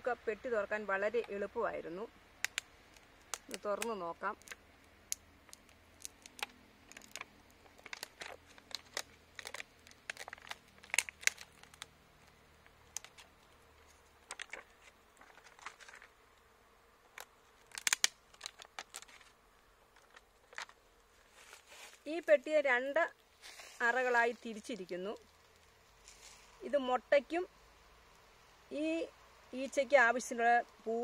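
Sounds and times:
plastic sheet crinkling: 5.4 - 12.0, 12.6 - 16.2, 17.1 - 22.1.

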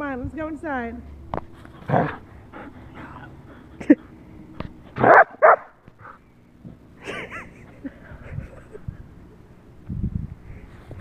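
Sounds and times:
dog barking: 5.0 - 5.7.

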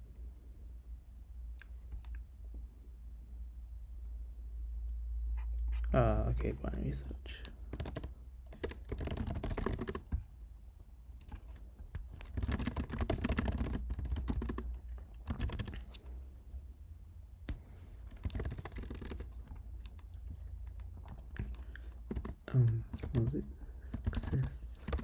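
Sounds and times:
computer keyboard typing: 7.5 - 10.3, 11.2 - 16.0, 18.0 - 25.0.

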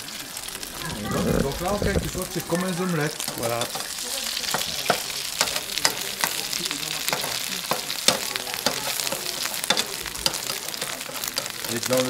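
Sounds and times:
eggs sizzling in hot oil: 0.0 - 12.0
metal skimmer scraping pan: 0.8 - 4.0.

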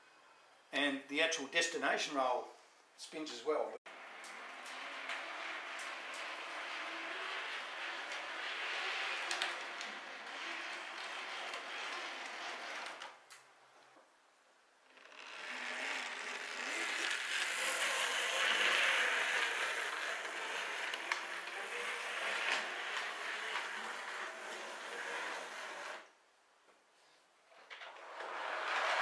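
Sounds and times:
metal wheels rolling on rails: 3.9 - 13.2, 15.4 - 26.1, 27.6 - 29.0
model tram motor whirring: 4.0 - 13.2, 15.4 - 26.1.

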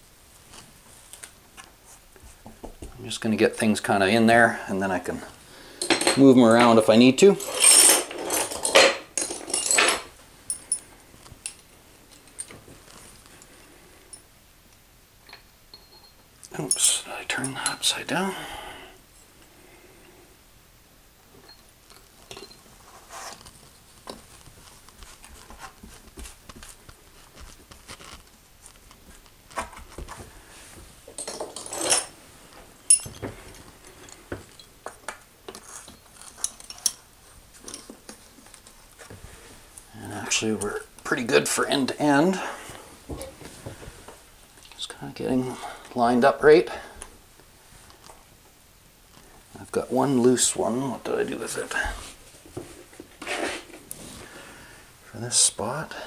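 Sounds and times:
glass tiles clinking: 7.4 - 10.8, 32.9 - 33.2.

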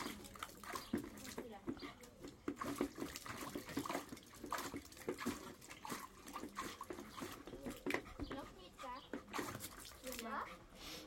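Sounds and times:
water splashing: 0.0 - 10.6.

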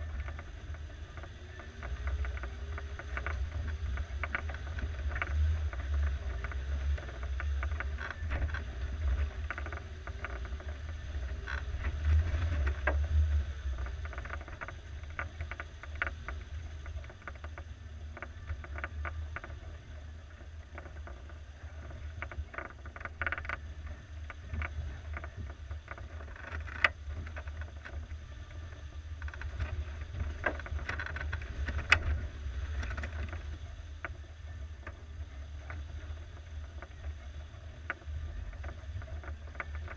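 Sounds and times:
suspension clicks and knocks: 29.2 - 34.2.

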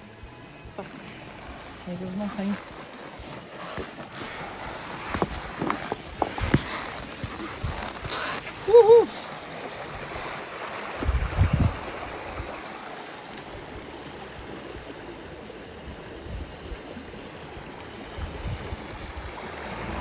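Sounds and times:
creek water running: 0.0 - 20.0
low bumps: 19.2 - 20.0.

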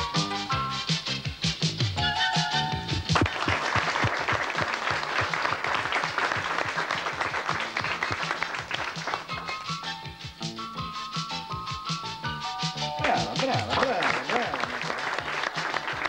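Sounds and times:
light music: 0.0 - 16.0
audience applauding: 3.1 - 10.0, 13.0 - 16.0.

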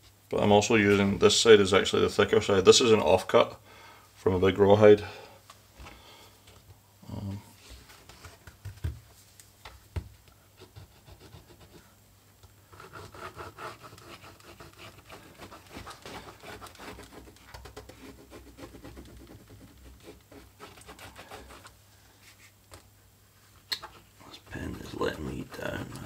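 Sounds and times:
tool scratching leather: 12.7 - 22.6, 24.5 - 26.0.

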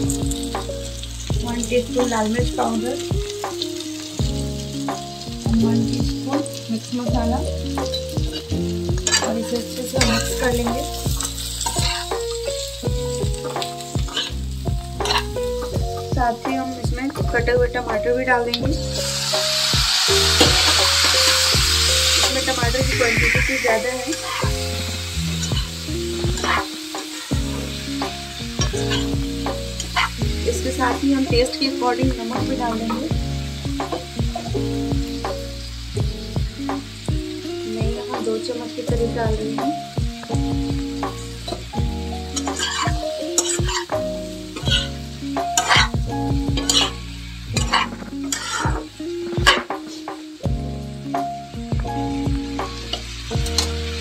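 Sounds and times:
background music: 0.0 - 54.0
vegetables sizzling in oil: 0.0 - 54.0
spatula scraping a metal pan: 7.9 - 12.6, 13.4 - 14.4, 15.0 - 15.4, 19.0 - 29.1, 42.3 - 44.0, 44.6 - 50.1.

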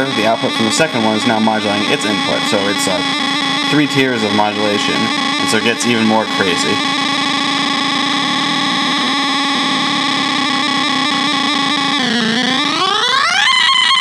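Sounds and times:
synthesizer buzzing tone: 0.0 - 14.0.

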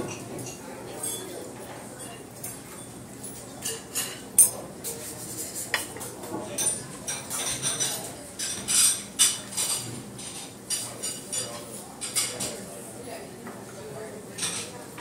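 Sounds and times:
cutlery and dishes clinking: 0.0 - 1.4, 2.0 - 12.6, 14.4 - 14.8.

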